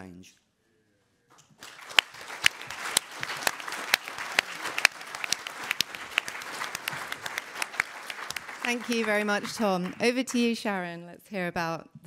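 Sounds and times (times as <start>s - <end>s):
audience applauding: 1.4s - 10.5s.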